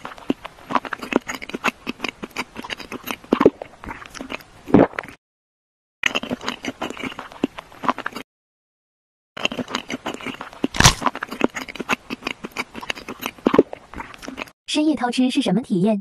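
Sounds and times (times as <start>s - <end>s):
person chewing crunchy food: 0.0s - 5.2s, 6.0s - 8.3s, 9.4s - 14.6s.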